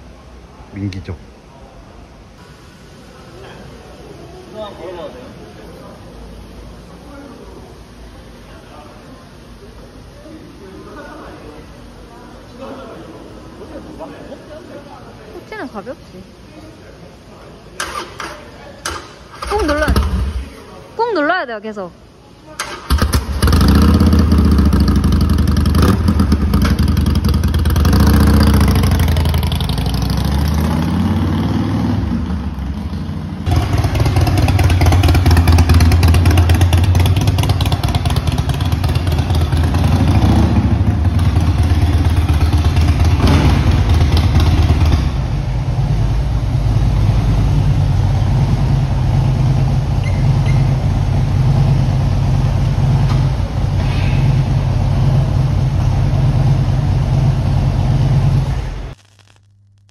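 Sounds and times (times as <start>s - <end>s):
motorcycle engine revving and idling: 18.9s - 20.5s, 22.6s - 59.0s
electric starter cranking: 22.6s - 24.0s.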